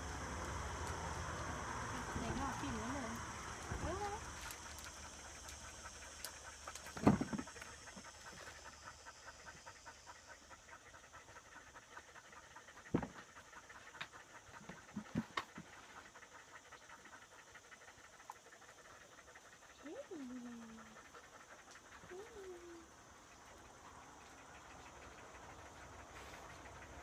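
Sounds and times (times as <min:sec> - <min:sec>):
dog panting: 0:00.1 - 0:27.0.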